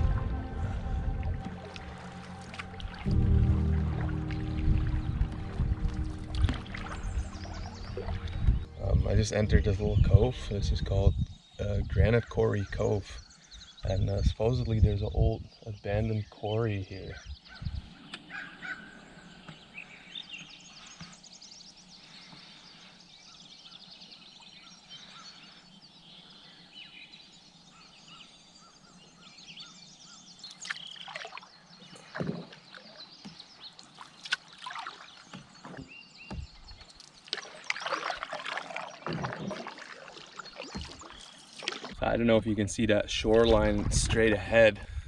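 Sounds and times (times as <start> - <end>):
canoe paddle strokes: 0.0 - 8.9, 30.5 - 42.3
paddle splashes: 0.0 - 8.9, 30.5 - 42.3
water trickling and dripping: 0.0 - 10.8, 30.4 - 42.3.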